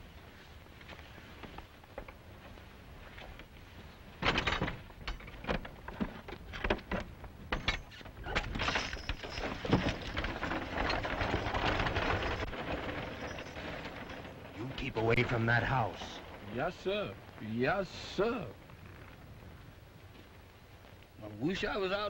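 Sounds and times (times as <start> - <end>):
wheels rolling on dirt road: 0.0 - 22.0
knocks and clatters: 4.2 - 16.4.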